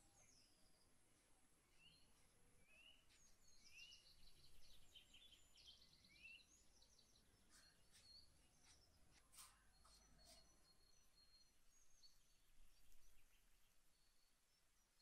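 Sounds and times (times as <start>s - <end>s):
faint birdsong chirps and trills: 0.0s - 15.0s.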